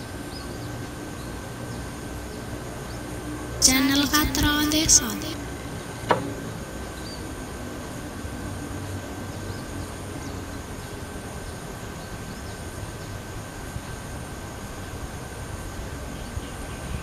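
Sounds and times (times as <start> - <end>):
low outdoor background noise: 0.0 - 17.0
faint high tone: 3.6 - 5.4.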